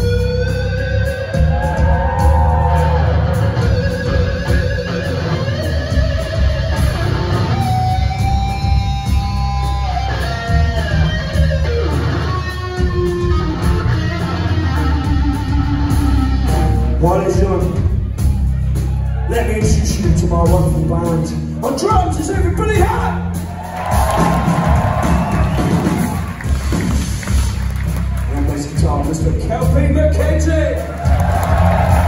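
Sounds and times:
bass guitar: 0:00.0 - 0:32.0
drums: 0:00.0 - 0:32.0
lead electric guitar bent notes: 0:02.8 - 0:17.0.

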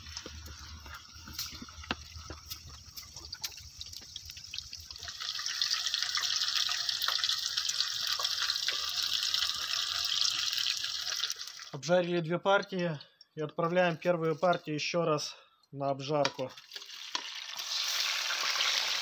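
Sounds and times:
ribs frying in hot oil: 0:00.0 - 0:11.7, 0:16.6 - 0:19.0.

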